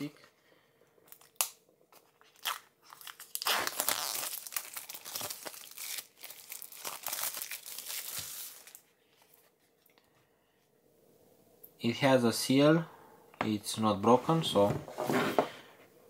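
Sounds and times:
plastic wrap crinkling: 1.1 - 8.9.

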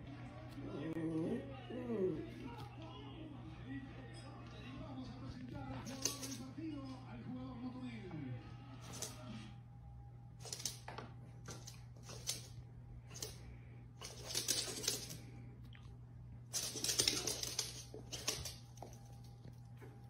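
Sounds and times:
steady low hum: 0.0 - 20.0
dog claws clicking on wood floor: 5.8 - 6.5, 10.4 - 13.4, 14.0 - 15.3, 16.5 - 20.0.

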